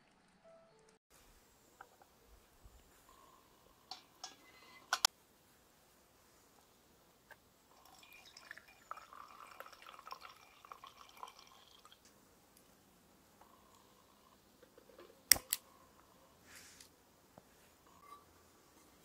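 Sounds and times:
fuel trickling into burner: 0:07.7 - 0:12.1.

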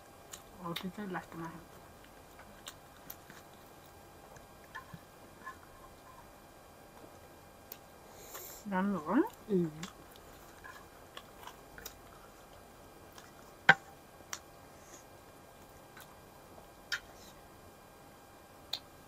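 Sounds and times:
chewing dry bread: 0:00.0 - 0:06.3, 0:09.2 - 0:17.5.

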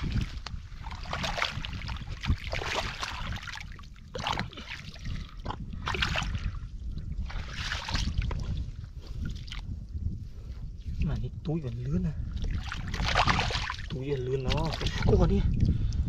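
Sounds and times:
hands splashing in muddy water: 0:00.0 - 0:06.6, 0:07.3 - 0:08.6, 0:12.4 - 0:15.2
low rumble: 0:00.0 - 0:16.0.

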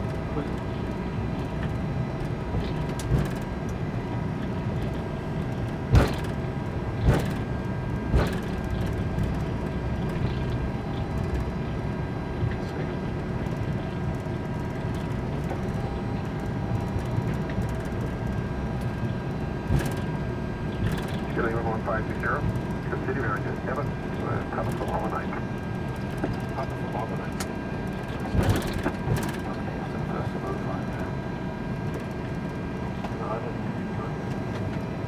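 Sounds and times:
aircraft cockpit rumble: 0:00.0 - 0:35.0
short thumps: 0:05.9 - 0:06.4.

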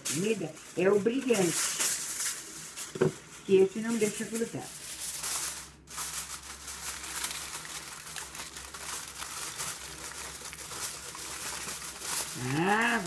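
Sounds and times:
aluminium foil crinkling: 0:00.0 - 0:13.0.

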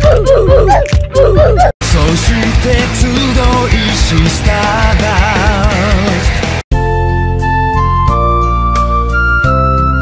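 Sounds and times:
loud rock music: 0:01.8 - 0:06.9.

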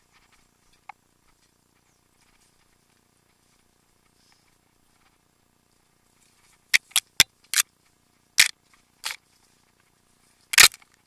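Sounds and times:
bike knocking and rattling: 0:06.3 - 0:11.0.

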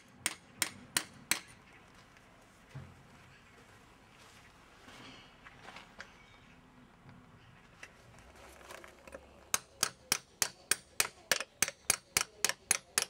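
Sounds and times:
faint knocks and rustling: 0:01.7 - 0:09.5.

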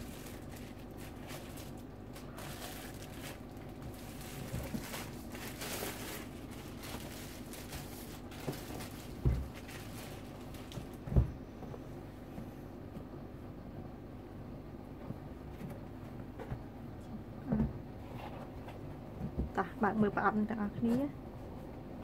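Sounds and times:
plastic wrap crinkling: 0:00.0 - 0:11.0.

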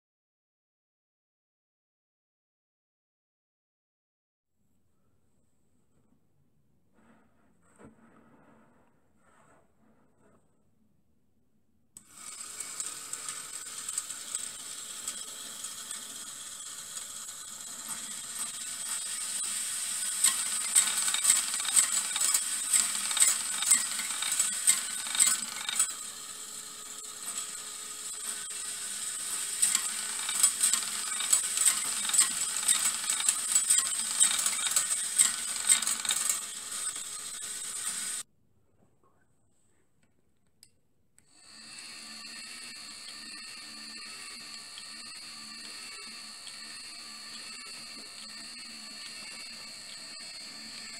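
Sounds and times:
small electric motor: 0:12.0 - 0:38.2, 0:41.2 - 0:50.9
steel balls rolling on wire rails: 0:12.1 - 0:38.2, 0:41.9 - 0:50.9.

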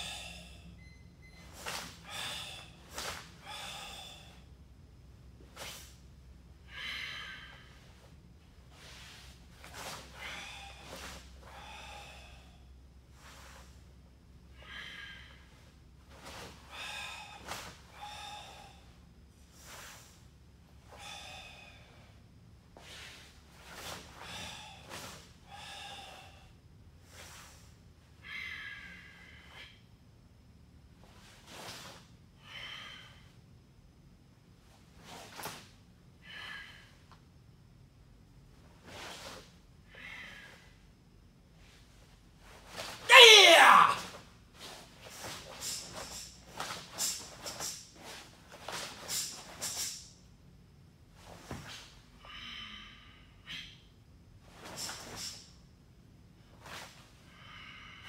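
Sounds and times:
forceful hissing breaths: 0:00.0 - 0:00.7, 0:01.6 - 0:04.5, 0:06.7 - 0:13.9, 0:14.5 - 0:22.2, 0:22.8 - 0:29.8, 0:44.6 - 0:50.2, 0:54.5 - 0:55.6.

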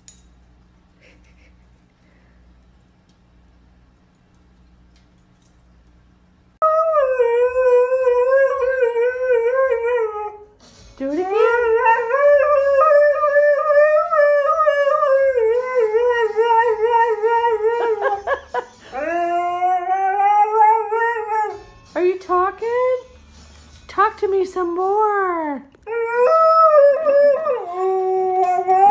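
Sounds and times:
dog howling: 0:11.2 - 0:18.2, 0:18.9 - 0:21.6, 0:25.9 - 0:28.9.

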